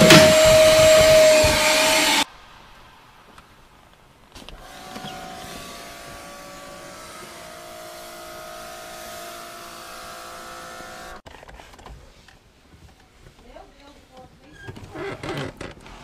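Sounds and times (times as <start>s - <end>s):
motor humming: 4.6s - 11.2s.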